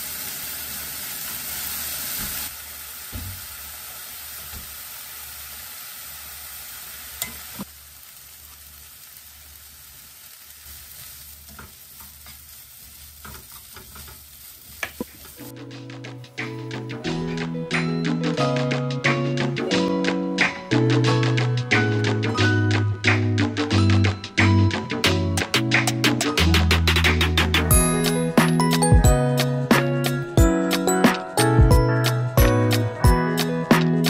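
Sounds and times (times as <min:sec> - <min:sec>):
food sizzling in a wok: 0:00.0 - 0:31.3
spatula scraping and tapping pan: 0:11.5 - 0:12.5, 0:13.2 - 0:15.4.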